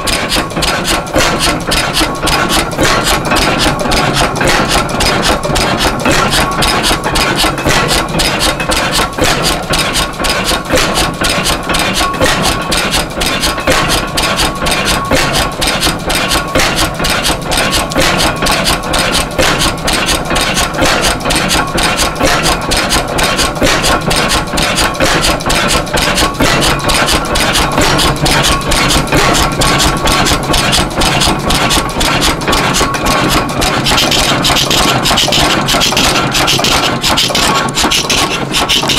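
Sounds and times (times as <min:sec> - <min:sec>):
pumping engine running: 0:00.0 - 0:38.9.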